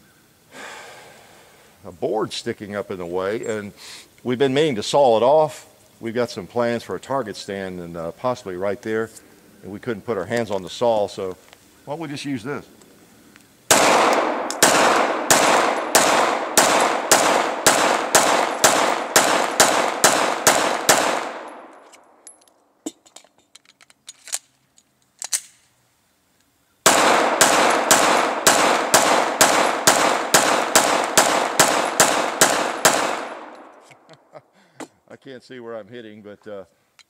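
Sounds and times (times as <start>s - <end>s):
pistol shots echoing: 13.7s - 22.2s, 26.8s - 33.9s.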